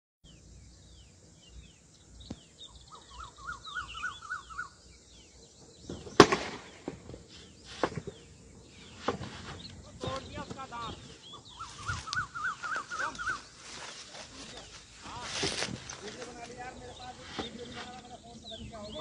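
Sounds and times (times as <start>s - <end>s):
birds chirping and warbling: 0.2s - 19.0s
loud sharp crack: 6.0s - 7.1s.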